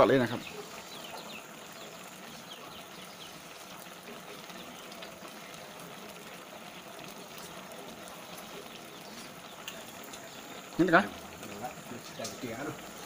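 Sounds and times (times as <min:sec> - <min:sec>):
curry bubbling in a pot: 0:00.0 - 0:13.0.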